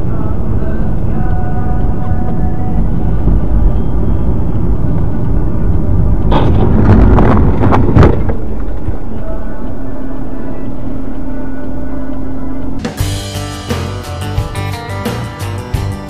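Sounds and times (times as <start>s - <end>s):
vehicle engine and road rumble: 0.0s - 16.0s
crunching collision: 6.2s - 10.1s
sharp bang: 6.3s - 8.5s.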